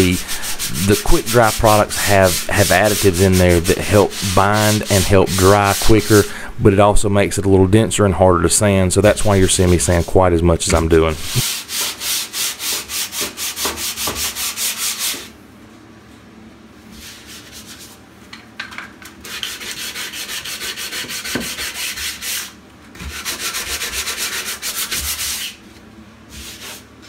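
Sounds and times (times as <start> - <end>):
sanding block scraping drywall: 0.0 - 6.3, 9.0 - 15.4, 16.9 - 18.0, 19.2 - 25.6, 26.3 - 27.0.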